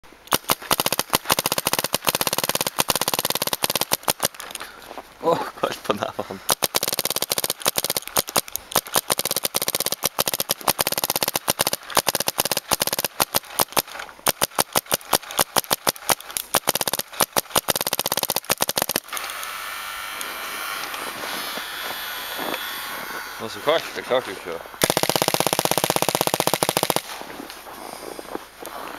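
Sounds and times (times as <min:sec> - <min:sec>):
paintball marker rapid firing: 0:00.2 - 0:04.6, 0:06.4 - 0:19.5, 0:24.8 - 0:27.4.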